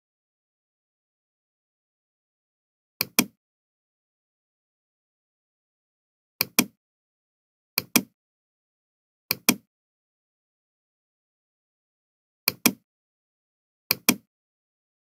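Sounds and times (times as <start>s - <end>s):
computer mouse clicks: 3.0s - 3.4s, 6.4s - 6.8s, 7.8s - 8.1s, 9.3s - 9.7s, 12.5s - 12.8s, 13.9s - 14.3s.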